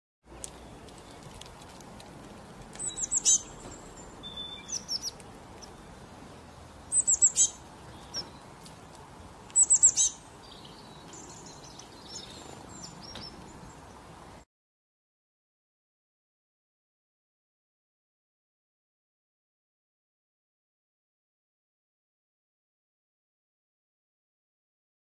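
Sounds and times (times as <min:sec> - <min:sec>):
songbird chirping: 0:00.3 - 0:14.4.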